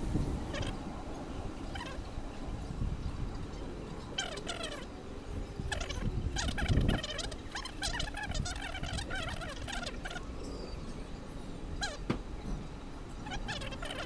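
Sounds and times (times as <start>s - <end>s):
overlapping animal calls: 0.5s - 0.8s, 1.7s - 2.1s, 4.1s - 4.9s, 5.6s - 10.3s, 11.8s - 12.0s, 13.2s - 14.0s.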